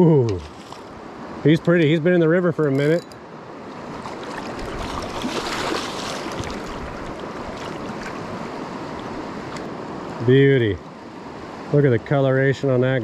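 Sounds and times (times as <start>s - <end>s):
river water rushing over gravel: 3.6s - 13.0s.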